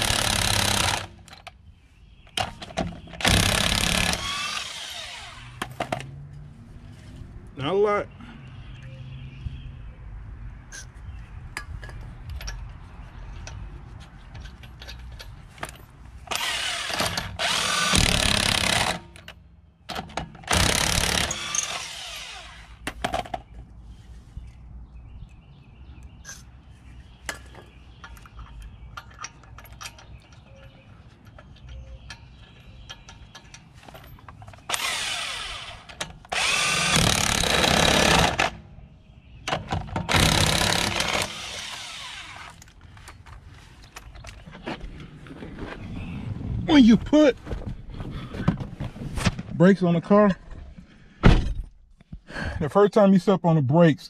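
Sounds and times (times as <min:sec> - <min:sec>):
impact wrench running lug nuts: 0:00.0 - 0:01.2, 0:03.2 - 0:05.7, 0:16.3 - 0:19.2, 0:20.4 - 0:22.8, 0:34.7 - 0:38.6, 0:40.0 - 0:42.6.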